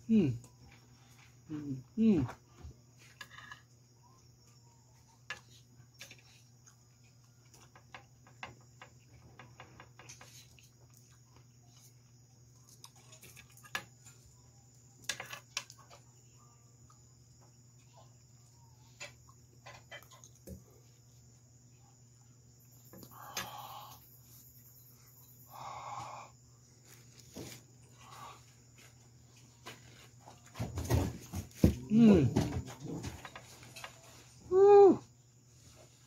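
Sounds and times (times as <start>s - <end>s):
faint chewing: 5.3s - 14.2s, 19.1s - 21.0s.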